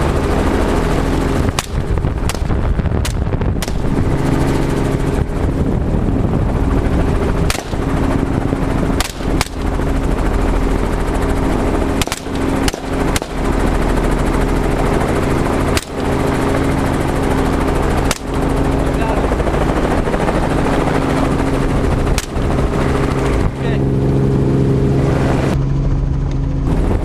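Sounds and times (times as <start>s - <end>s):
helicopter rotor and engine drone: 0.0s - 27.0s
rifle shots: 1.5s - 4.0s, 7.5s - 8.0s, 9.0s - 9.8s, 12.0s - 13.7s, 15.7s - 16.3s, 18.0s - 18.4s, 22.2s - 22.5s.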